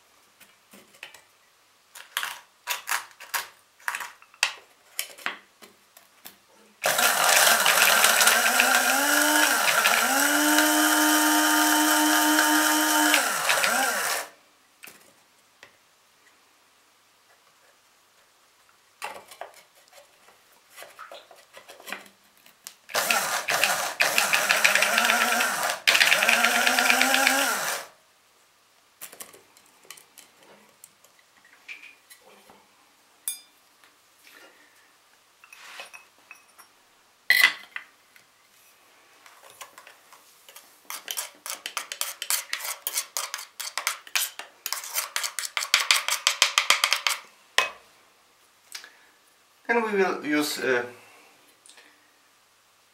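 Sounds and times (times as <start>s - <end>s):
blade coffee grinder motor: 6.8s - 14.3s, 22.9s - 27.9s.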